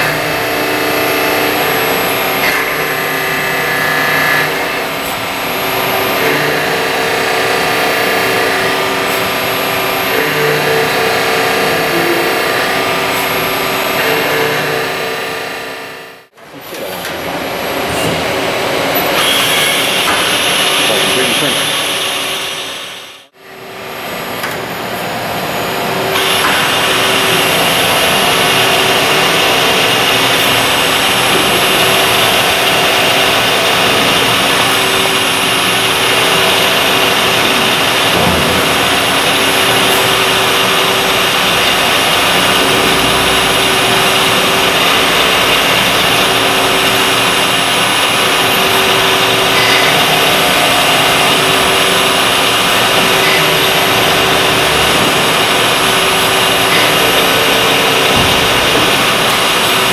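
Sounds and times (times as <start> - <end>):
machine tool whine and hiss: 0.0 - 59.9
high tone: 41.8 - 59.9.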